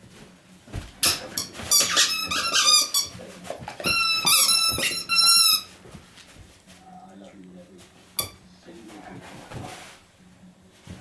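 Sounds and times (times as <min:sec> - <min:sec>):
squeaky dog toy squeaking: 0:01.0 - 0:03.2, 0:03.8 - 0:05.7.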